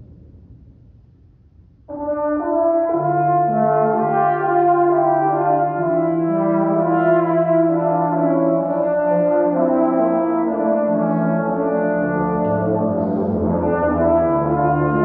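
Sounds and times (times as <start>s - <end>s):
trombone choir playing a hymn: 1.9s - 15.0s.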